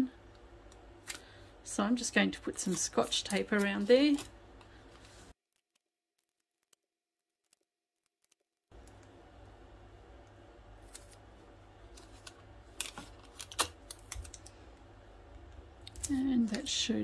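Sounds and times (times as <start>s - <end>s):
adhesive tape crackling: 5.5s - 9.1s, 10.8s - 14.6s
faint low hum: 8.7s - 17.0s.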